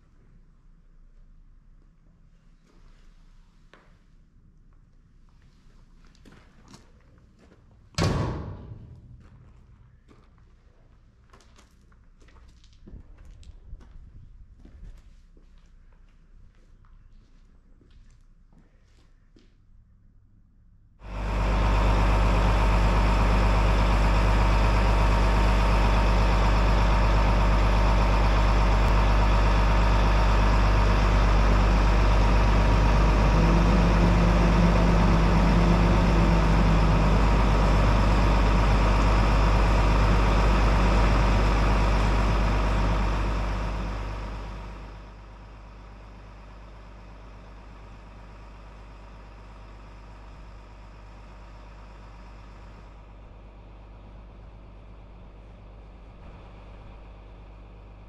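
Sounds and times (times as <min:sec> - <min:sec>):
lorry diesel engine running: 0:08.0 - 0:10.2, 0:21.0 - 0:58.0
extra hum: 0:21.0 - 0:58.0.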